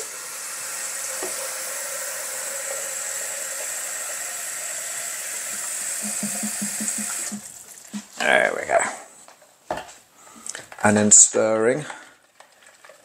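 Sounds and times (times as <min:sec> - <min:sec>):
tap water filling plastic jug: 0:00.0 - 0:08.1, 0:12.0 - 0:13.0.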